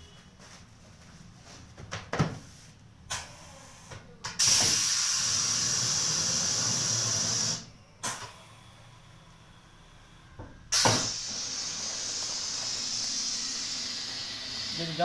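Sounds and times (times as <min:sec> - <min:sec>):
compressed air hissing: 0:02.6 - 0:09.9, 0:10.7 - 0:15.0
short puff of air: 0:04.4 - 0:08.2, 0:10.7 - 0:14.7.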